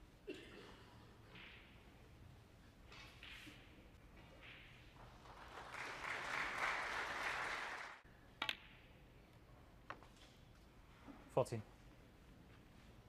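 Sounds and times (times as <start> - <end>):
audience applauding: 5.1 - 8.0.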